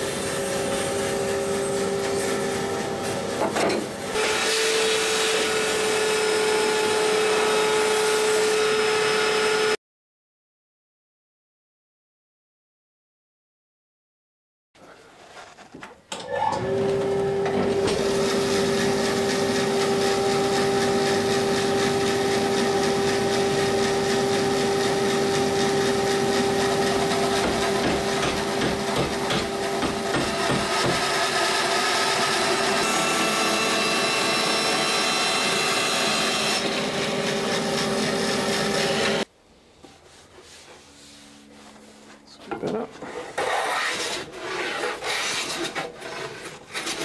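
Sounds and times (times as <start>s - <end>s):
bandsaw cutting wood: 4.1s - 9.8s, 17.0s - 39.3s, 42.9s - 47.0s.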